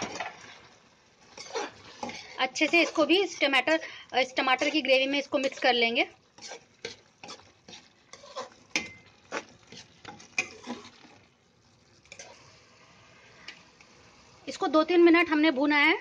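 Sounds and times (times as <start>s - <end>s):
spatula scraping metal pan: 0.0s - 3.7s, 4.4s - 11.3s, 12.0s - 13.6s
faint sizzle: 0.0s - 16.0s.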